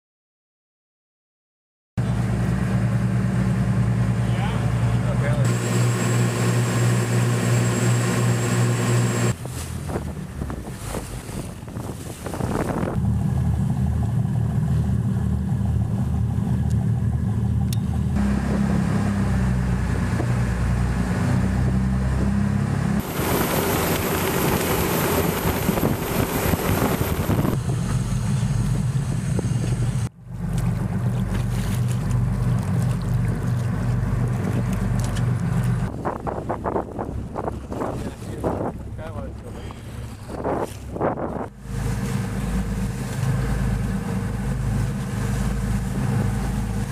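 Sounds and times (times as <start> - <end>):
small boat engines running: 2.0 - 46.9
wind on microphone: 9.3 - 13.4, 23.0 - 27.7, 34.2 - 42.9.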